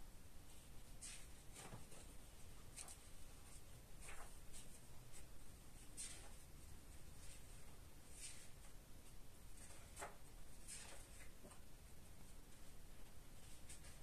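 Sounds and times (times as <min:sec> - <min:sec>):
paintbrush swishing on paper: 0:00.5 - 0:08.8.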